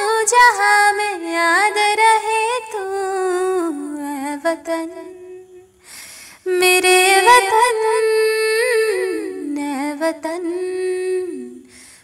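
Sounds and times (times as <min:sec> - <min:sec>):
woman singing wordless melody: 0:00.0 - 0:12.0
short breath: 0:05.8 - 0:06.4, 0:11.6 - 0:12.0.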